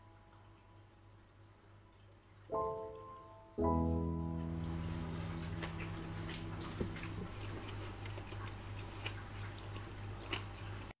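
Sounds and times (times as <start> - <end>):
steady low hum: 2.5 - 10.9.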